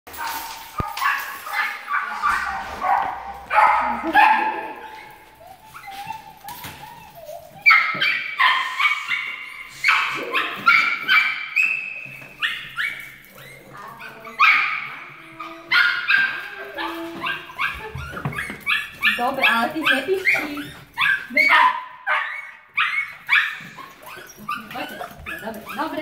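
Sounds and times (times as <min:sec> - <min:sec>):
skunks squeaking: 0:22.4 - 0:26.0.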